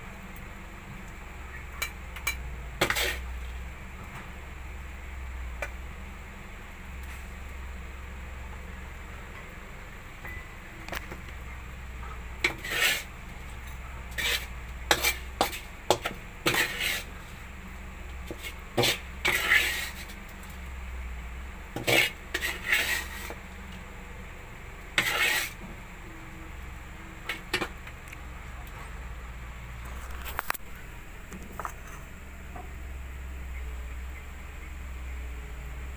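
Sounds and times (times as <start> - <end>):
metal ladle scraping a wok: 1.8 - 3.4, 12.4 - 17.4, 18.2 - 20.2, 21.8 - 23.4, 24.9 - 25.6.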